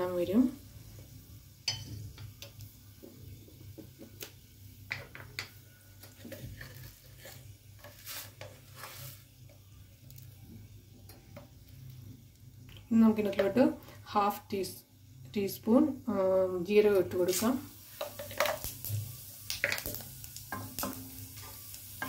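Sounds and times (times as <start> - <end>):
spices sizzling in oil: 0.0 - 22.0
small crackles and pops: 9.5 - 10.4, 18.2 - 21.9.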